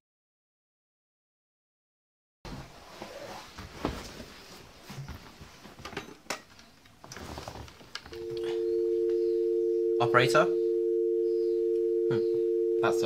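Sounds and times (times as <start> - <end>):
two-tone dial tone: 8.2 - 13.0.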